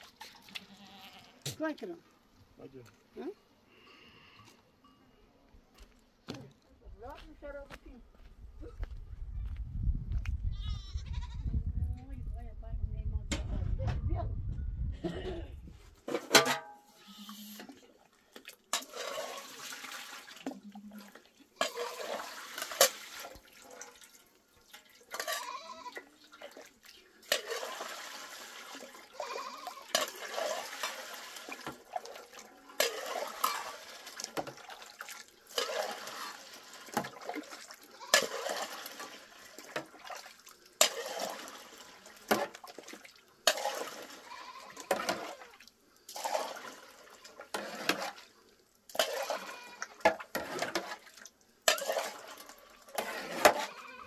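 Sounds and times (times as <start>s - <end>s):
milk pouring and splashing: 17.9s - 53.8s.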